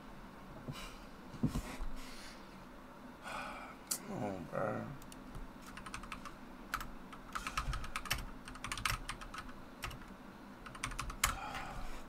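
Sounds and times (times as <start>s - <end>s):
keyboard typing clicks: 5.0s - 11.4s.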